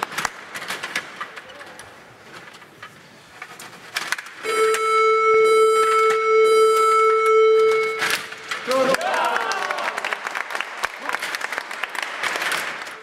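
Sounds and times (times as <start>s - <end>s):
electronic buzzer steady tone: 4.4s - 8.0s.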